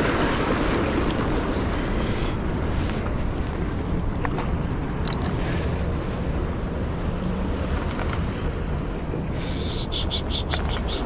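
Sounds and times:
sea surf: 0:00.0 - 0:03.7.

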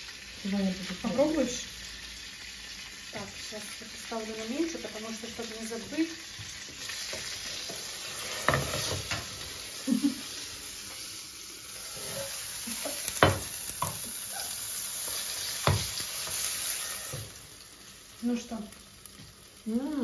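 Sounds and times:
bread sizzling in a pan: 0:00.0 - 0:20.0
frying pan and lid knocking: 0:13.2 - 0:14.0.

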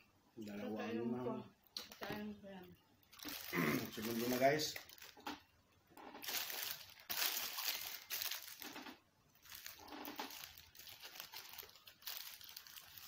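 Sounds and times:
paper wrapper crinkling: 0:03.0 - 0:05.4, 0:06.1 - 0:13.0.

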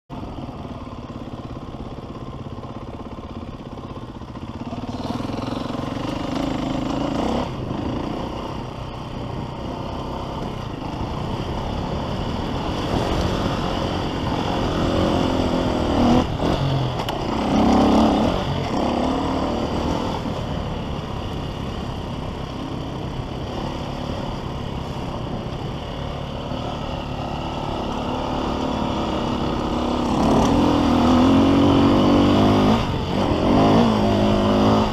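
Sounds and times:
motocross bike engine revving: 0:04.3 - 0:08.8, 0:09.6 - 0:21.9, 0:26.0 - 0:34.9.

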